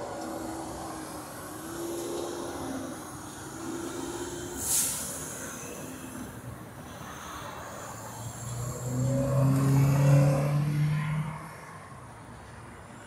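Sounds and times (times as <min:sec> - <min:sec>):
passing traffic hum: 0:00.0 - 0:13.0.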